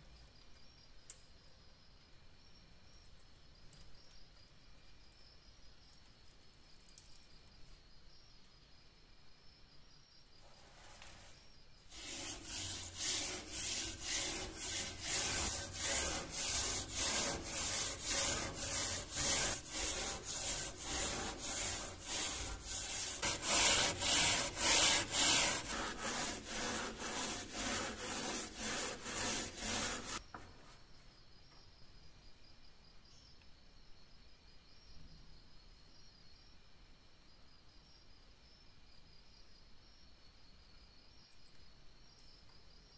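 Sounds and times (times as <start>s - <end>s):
metal scouring pad scrubbing blade: 11.9s - 30.2s.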